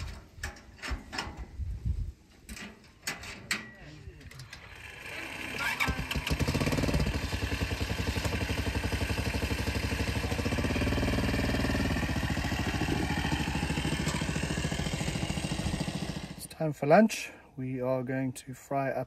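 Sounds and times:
small engine idling: 4.4 - 16.5.

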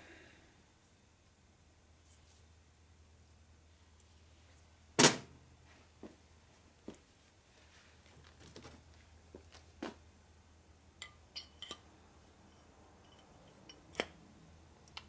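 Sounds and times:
light metallic clicks and clinks: 11.0 - 11.9, 12.5 - 14.1.

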